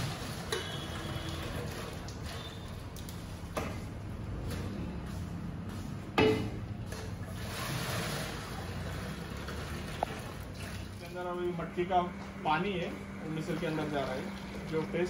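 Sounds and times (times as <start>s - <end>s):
water poured splashing through strainer: 0.0s - 3.0s, 7.2s - 11.1s.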